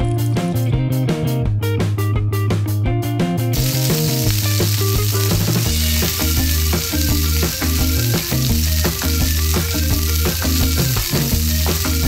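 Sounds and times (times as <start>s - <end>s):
background music with beat: 0.0s - 12.0s
dough sizzling in hot oil: 3.6s - 12.0s.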